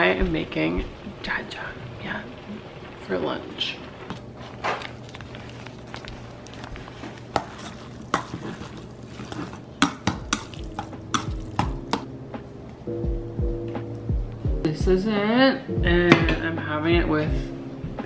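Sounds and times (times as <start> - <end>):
utensils scraping metal bowl: 6.9 - 11.6.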